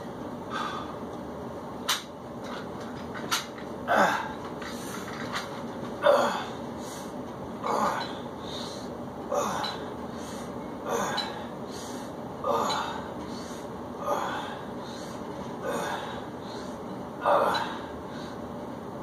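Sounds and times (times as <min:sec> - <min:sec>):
man breathing hard: 0:00.4 - 0:01.0, 0:06.1 - 0:18.6.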